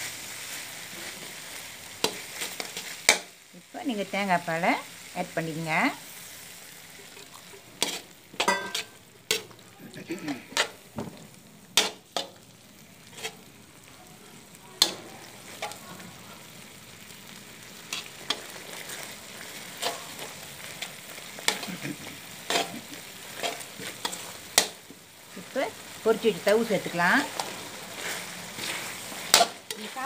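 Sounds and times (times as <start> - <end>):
sauce sizzling in a pan: 0.0 - 30.0
metal spatula scraping a wok: 7.8 - 9.6, 10.4 - 10.8, 11.8 - 12.4, 13.0 - 13.5, 14.8 - 15.8, 17.8 - 24.8, 26.7 - 30.0.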